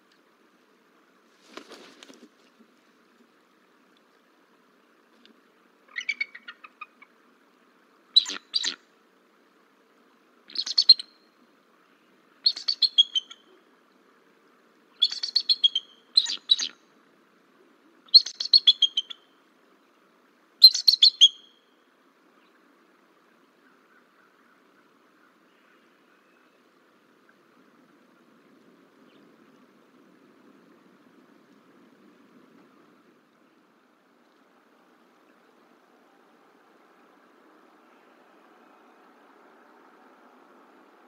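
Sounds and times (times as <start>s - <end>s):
eagles chittering calls: 5.9s - 7.2s, 8.2s - 8.8s, 12.5s - 13.6s, 15.0s - 16.8s, 18.1s - 19.3s, 20.6s - 21.6s.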